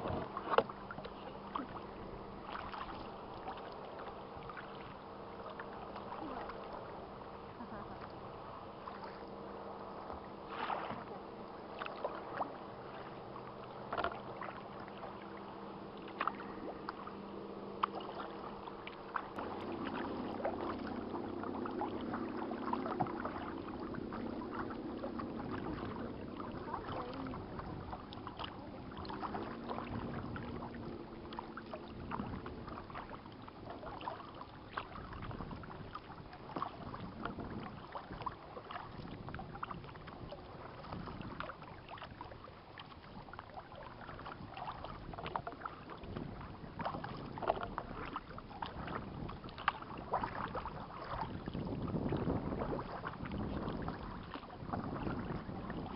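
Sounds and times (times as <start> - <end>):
steady low hum: 0.0 - 39.7
kayak paddles splashing in water: 0.0 - 55.9.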